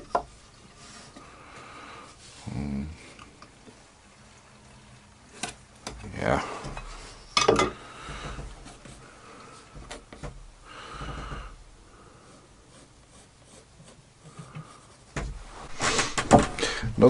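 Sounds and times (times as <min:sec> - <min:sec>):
close breathing: 0:01.0 - 0:03.3, 0:06.4 - 0:09.9, 0:10.6 - 0:12.8, 0:14.2 - 0:17.0
pencil scratching on wood: 0:12.1 - 0:15.3.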